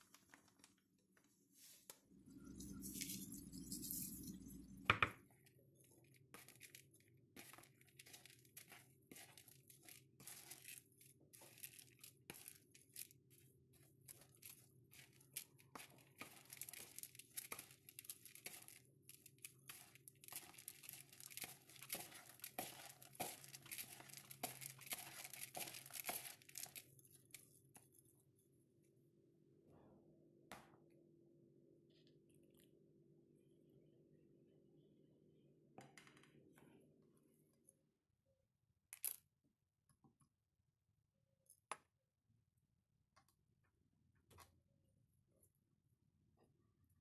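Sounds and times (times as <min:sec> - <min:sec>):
rice grains rustling in a bowl: 0:05.9 - 0:27.6.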